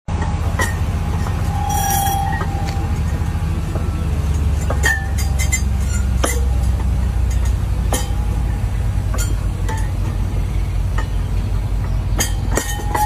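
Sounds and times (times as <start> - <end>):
crane engine hum: 0.1 - 13.0
glass insulator discs clinking: 0.6 - 4.0, 4.6 - 8.5, 9.1 - 10.2, 12.2 - 13.0.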